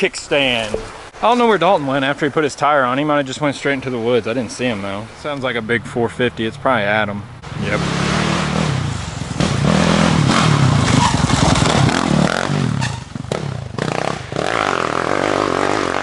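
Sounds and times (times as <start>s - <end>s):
dirt bike engine revving: 7.4s - 16.0s.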